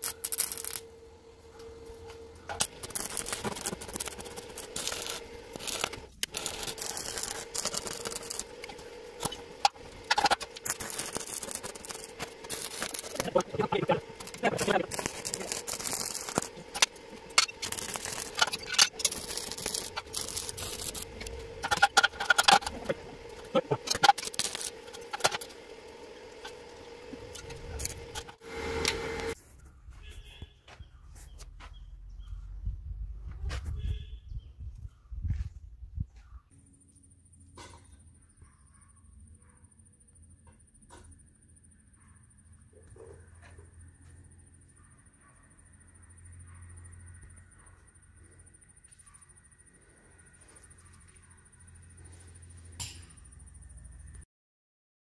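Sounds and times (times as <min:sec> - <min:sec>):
welding arc crackling: 0:00.0 - 0:01.2, 0:01.8 - 0:29.4.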